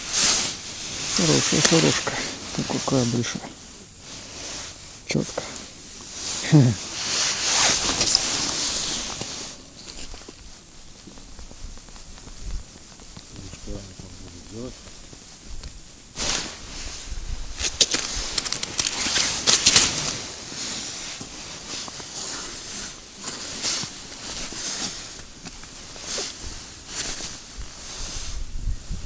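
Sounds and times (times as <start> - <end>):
jacket fabric rustling: 5.6 - 13.0, 16.2 - 28.4.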